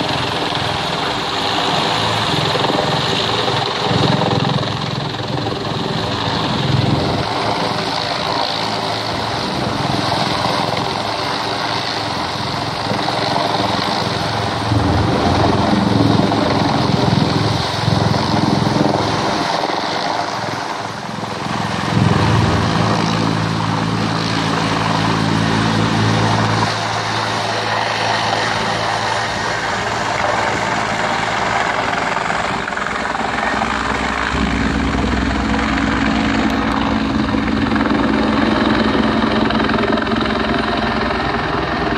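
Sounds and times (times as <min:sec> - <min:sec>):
helicopter hovering: 0:00.0 - 0:41.9.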